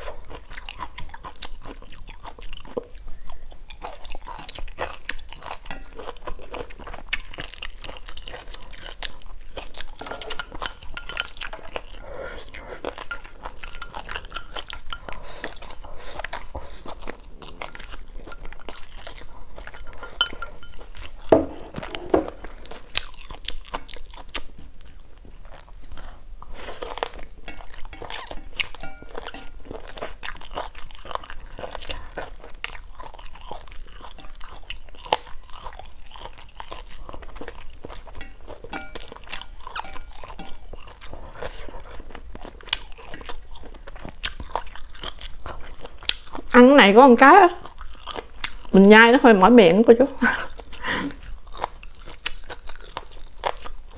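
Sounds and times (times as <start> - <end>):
chewing and crunching food: 0.0 - 53.9.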